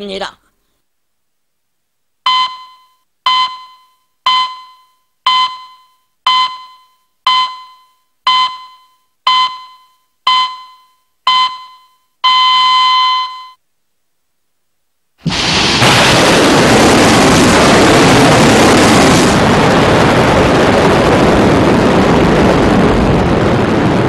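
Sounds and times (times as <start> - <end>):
long steady electronic tone: 2.2 - 13.6
electronic countdown beeps: 2.3 - 13.6.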